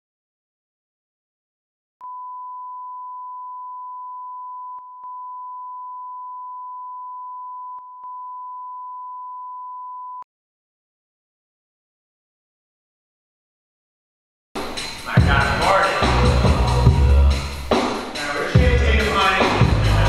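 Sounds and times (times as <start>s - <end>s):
censor bleep tone: 2.0s - 10.3s.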